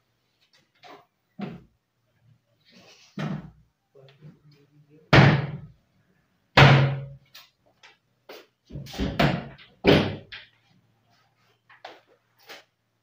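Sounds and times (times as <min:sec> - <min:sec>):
cabinet doors banging shut: 0:05.1 - 0:05.7, 0:06.6 - 0:07.1, 0:08.7 - 0:10.4.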